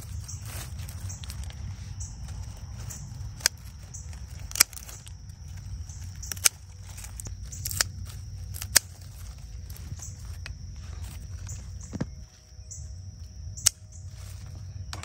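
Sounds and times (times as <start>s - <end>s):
pruning shears snipping stems: 0.0s - 10.6s.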